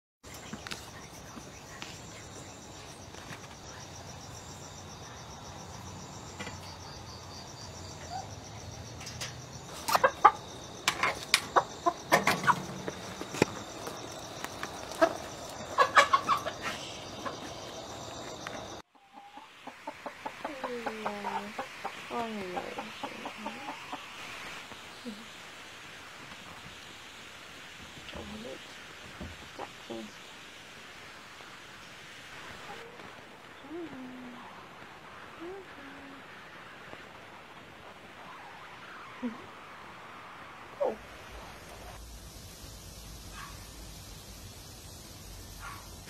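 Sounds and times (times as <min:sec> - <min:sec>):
hens clucking: 0:09.7 - 0:24.4
hens squawking: 0:14.8 - 0:17.6.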